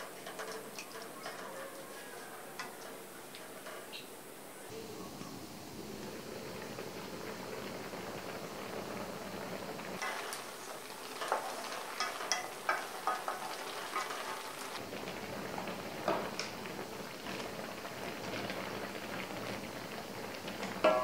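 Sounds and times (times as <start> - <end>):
liquid bubbling and popping in wok: 5.6 - 21.0.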